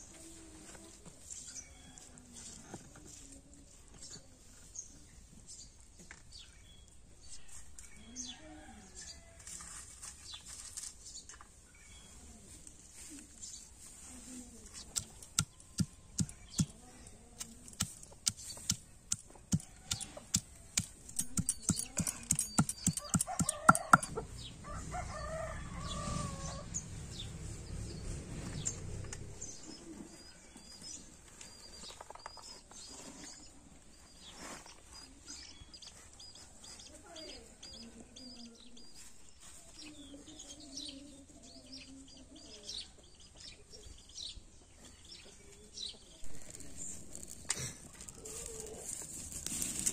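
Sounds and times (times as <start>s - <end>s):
small birds calling: 14.7s - 24.6s
stone pestle pounding garlic: 19.5s - 24.1s
chickens calling: 19.5s - 26.8s.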